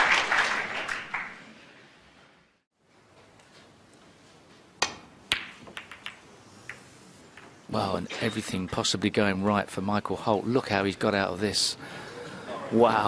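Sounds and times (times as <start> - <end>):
audience applause: 0.0 - 1.4
snooker balls clacking: 4.9 - 7.6.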